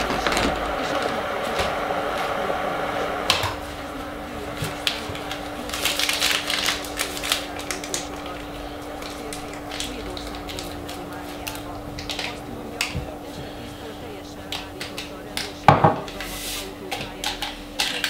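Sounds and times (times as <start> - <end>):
steady hum: 0.0 - 18.0
electric kettle clicks and rattling: 3.0 - 3.6, 4.6 - 13.1, 16.9 - 18.0.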